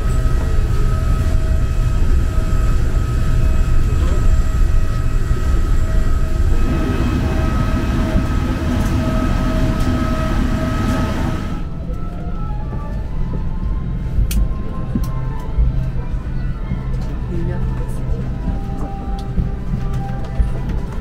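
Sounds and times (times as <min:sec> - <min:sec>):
high whine: 0:00.0 - 0:16.1.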